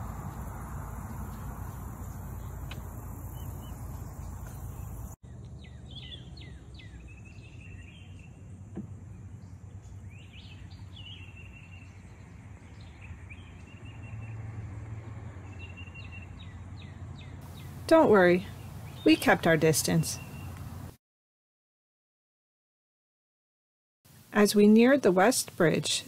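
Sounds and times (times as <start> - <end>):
low rushing noise: 0.0 - 5.1
low steady hum: 0.0 - 11.2
birds chirping: 0.0 - 14.5, 15.4 - 20.9.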